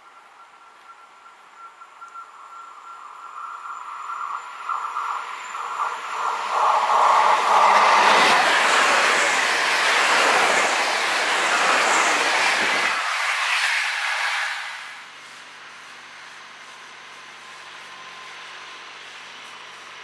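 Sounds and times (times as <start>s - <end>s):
tone from rails: 0.0s - 14.6s
train passing at speed: 0.0s - 20.0s
hiss: 2.5s - 20.0s.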